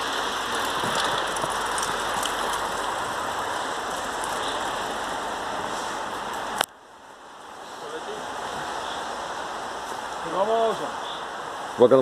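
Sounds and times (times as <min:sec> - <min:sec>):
bike freewheel hubs clicking: 0:00.0 - 0:04.9
steady rushing noise: 0:00.0 - 0:12.0.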